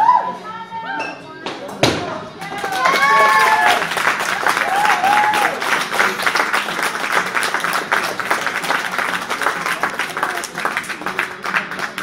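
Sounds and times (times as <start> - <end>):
spectators clapping: 2.4 - 12.0.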